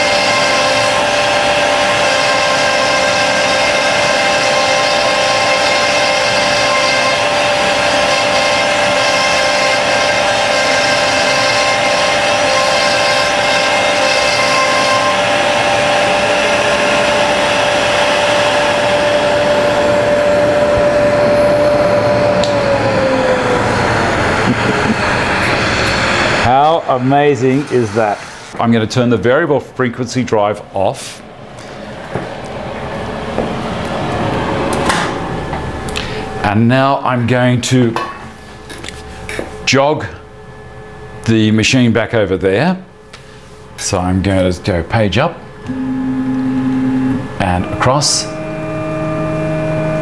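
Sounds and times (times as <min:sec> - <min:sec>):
router spindle whining: 0:00.0 - 0:28.7, 0:45.6 - 0:50.0.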